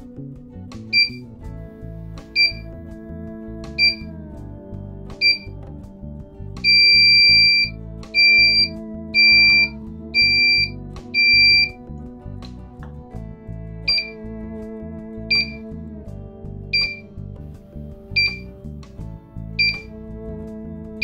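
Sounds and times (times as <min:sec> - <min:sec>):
background music: 0:00.0 - 0:21.0
high-pitched buzzer beeps: 0:01.0 - 0:01.2, 0:02.4 - 0:02.6, 0:03.8 - 0:04.1, 0:05.2 - 0:05.6, 0:06.6 - 0:11.8, 0:13.9 - 0:14.2, 0:15.3 - 0:15.6, 0:16.8 - 0:17.0, 0:18.2 - 0:18.5, 0:19.6 - 0:19.9.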